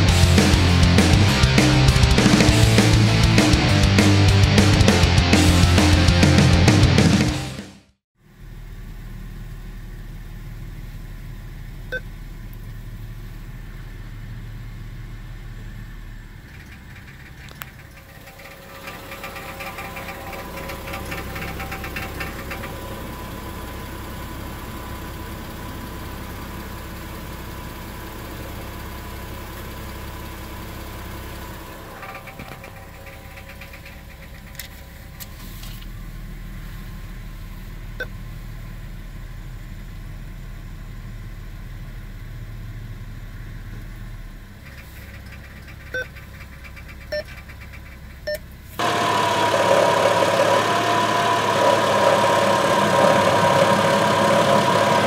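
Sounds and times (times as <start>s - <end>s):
car engine idling: 0.0s - 7.2s, 8.2s - 55.0s
heat shield rattling: 16.4s - 23.2s, 31.8s - 35.6s, 44.7s - 48.2s.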